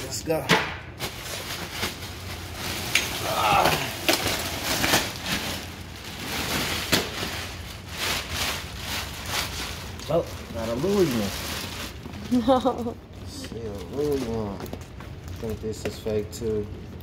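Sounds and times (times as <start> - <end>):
plastic bag rustling and crinkling: 0.9 - 17.0.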